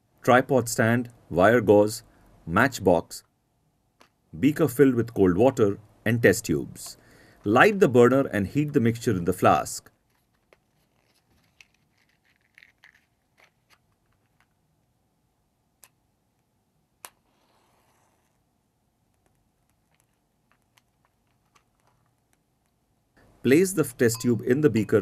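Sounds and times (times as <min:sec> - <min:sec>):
matchbox clicks and rustles: 0:09.9 - 0:14.6.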